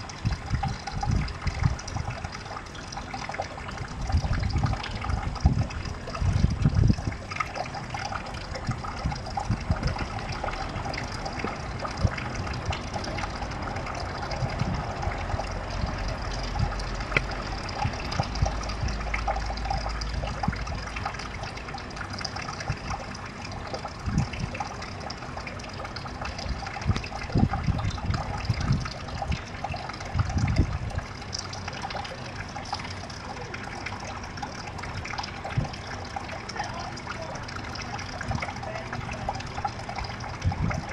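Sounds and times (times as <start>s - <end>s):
water trickling into pond: 0.0s - 40.9s.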